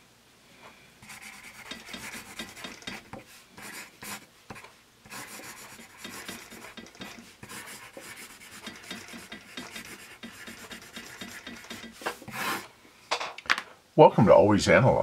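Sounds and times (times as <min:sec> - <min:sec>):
pencil scratching on paper: 0:01.0 - 0:12.7.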